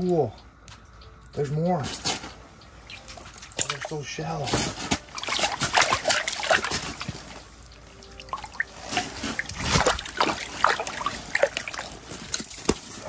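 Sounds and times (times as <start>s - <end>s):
water splashing and trickling: 2.8s - 13.0s.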